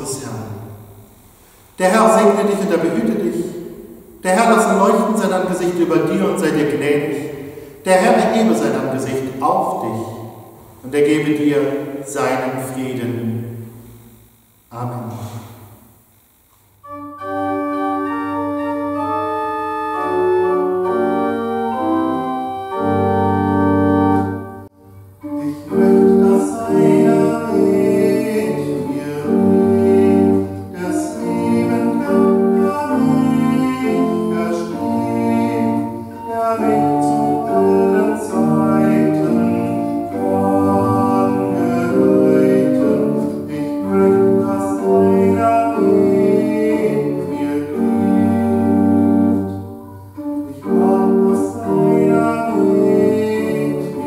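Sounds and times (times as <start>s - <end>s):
pipe organ playing a hymn: 1.8s - 13.5s, 16.8s - 54.0s
person singing: 25.2s - 54.0s.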